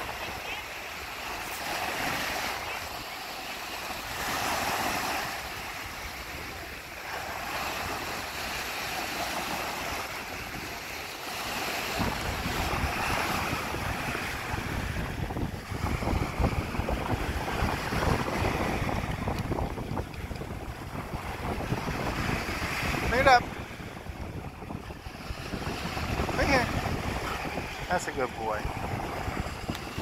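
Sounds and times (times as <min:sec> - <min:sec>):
surf breaking on sand: 0:00.0 - 0:30.0
wind buffeting microphone: 0:09.3 - 0:30.0.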